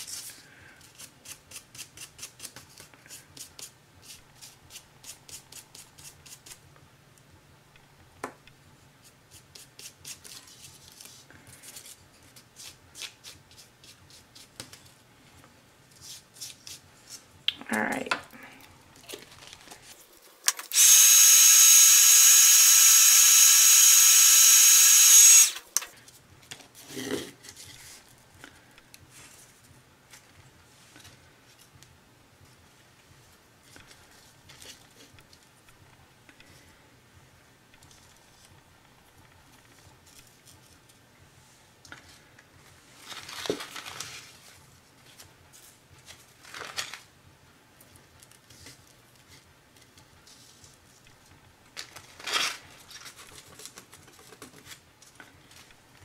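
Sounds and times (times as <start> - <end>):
heat gun fan rushing: 20.7 - 25.7.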